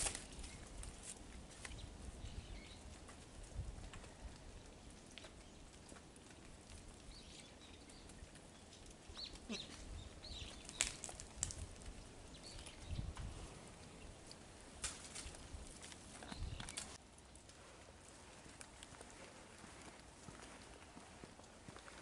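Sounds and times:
animal rustling on snow: 0:10.6 - 0:22.0.

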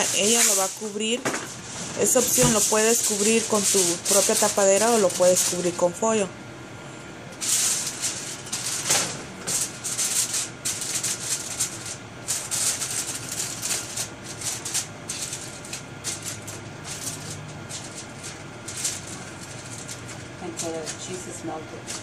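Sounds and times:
aluminium foil crinkling: 0:00.0 - 0:06.3, 0:07.4 - 0:22.0.

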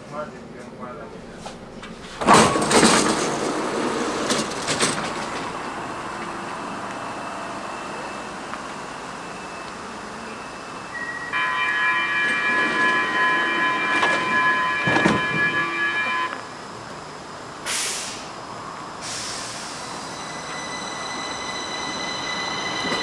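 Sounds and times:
door-closing warning tone: 0:09.2 - 0:16.5, 0:20.0 - 0:23.0
train doors knocking: 0:11.6 - 0:16.4.

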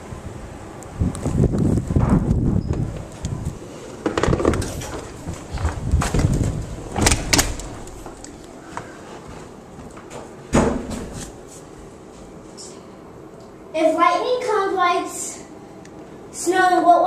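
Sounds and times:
thump: 0:10.5 - 0:11.1.

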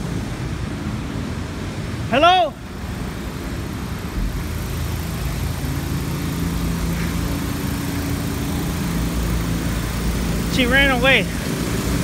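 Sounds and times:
city street noise: 0:00.0 - 0:12.0
vehicle engine running: 0:00.0 - 0:12.0.

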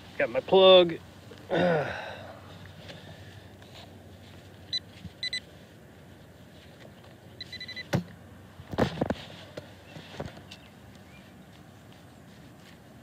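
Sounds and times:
metal detector pinpointer beeping: 0:04.7 - 0:05.4, 0:07.4 - 0:07.9.

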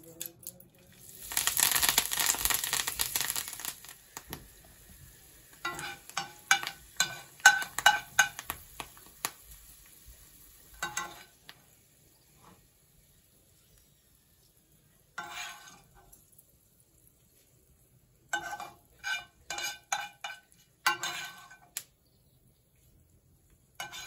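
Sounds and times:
leaves sizzling in hot oil: 0:00.8 - 0:24.0
metal spoon clinking on pan: 0:05.6 - 0:08.6, 0:10.7 - 0:11.4, 0:18.3 - 0:21.8, 0:23.8 - 0:24.0.

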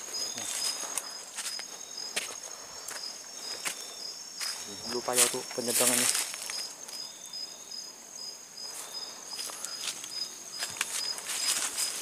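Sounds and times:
footsteps crunching through undergrowth: 0:00.0 - 0:07.1, 0:08.6 - 0:12.0
night insects chirring: 0:00.0 - 0:12.0
brush rustling: 0:04.4 - 0:07.1, 0:08.6 - 0:12.0.

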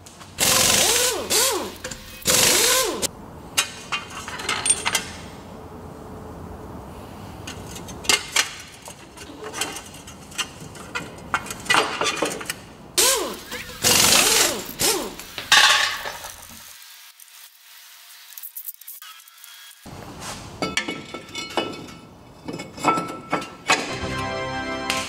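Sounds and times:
metal tools clicking and clinking: 0:04.0 - 0:05.1.

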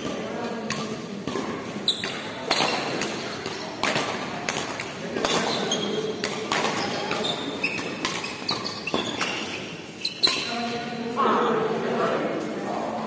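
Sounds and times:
rackets hitting shuttlecock: 0:00.0 - 0:10.9
shoe squeaks on court floor: 0:01.8 - 0:02.9, 0:05.3 - 0:10.9.

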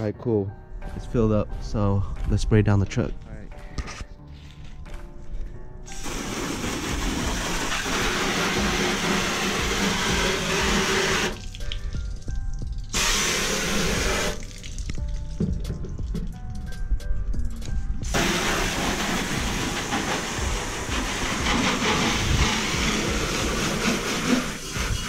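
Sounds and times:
water spraying from hose nozzle: 0:05.9 - 0:15.4, 0:18.0 - 0:25.0.

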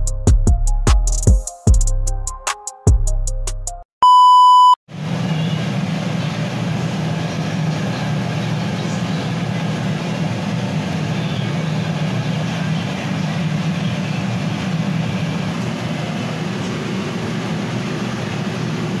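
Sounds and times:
loud electronic beep: 0:04.0 - 0:04.8.

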